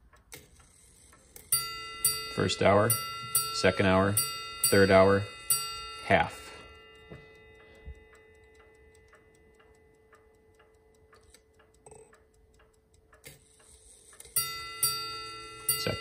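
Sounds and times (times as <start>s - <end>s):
clock hand clicks: 0.0s - 5.2s, 6.8s - 16.0s
clock ticking: 0.0s - 16.0s
bell ringing faintly: 1.5s - 8.9s, 14.4s - 16.0s
bell striking sharply: 1.6s - 7.4s.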